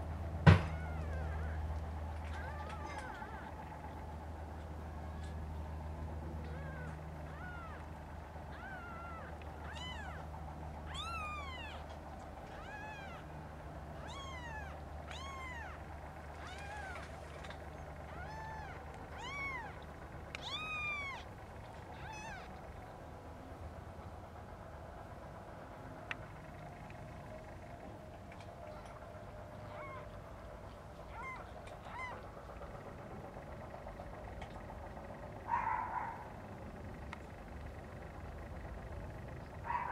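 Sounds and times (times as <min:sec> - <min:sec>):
kittens mewing: 0:00.6 - 0:03.6, 0:06.4 - 0:22.8, 0:29.7 - 0:30.2, 0:31.0 - 0:32.3.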